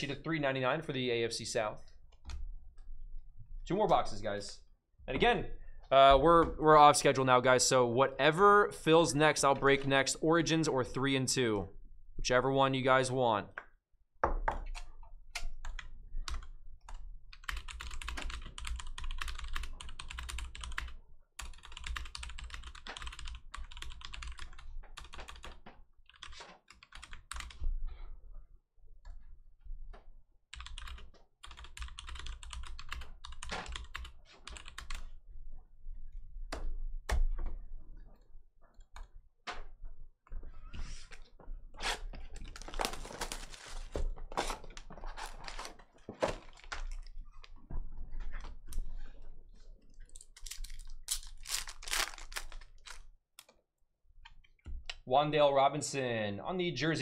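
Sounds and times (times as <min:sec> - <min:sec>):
typing on a keyboard: 0:14.7 - 0:27.6, 0:30.5 - 0:35.1.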